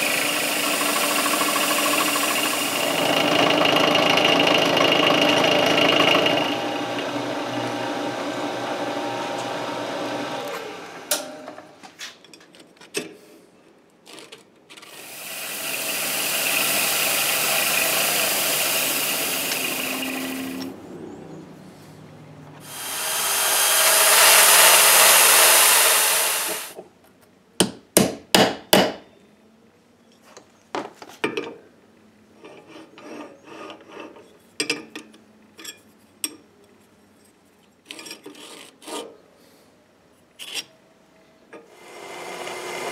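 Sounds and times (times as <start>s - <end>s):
milling machine cutting steel: 0.0s - 11.3s, 14.9s - 20.7s, 22.6s - 26.8s.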